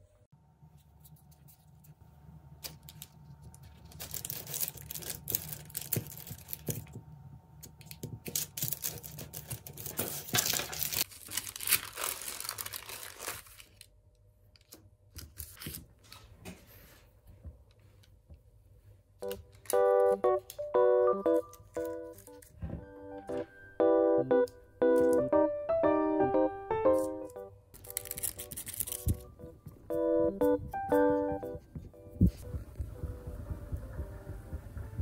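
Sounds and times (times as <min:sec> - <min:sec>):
paper crinkling: 0:02.6 - 0:07.0, 0:07.7 - 0:13.9, 0:14.6 - 0:16.9, 0:19.2 - 0:20.7, 0:21.3 - 0:23.4, 0:26.9 - 0:29.5
low hum: 0:19.2 - 0:35.0.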